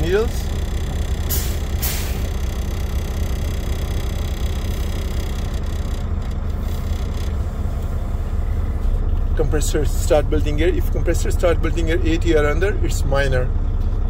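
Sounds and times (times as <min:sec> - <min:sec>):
diesel truck engine idling: 0:00.0 - 0:14.0
air brake hisses: 0:01.3 - 0:02.3.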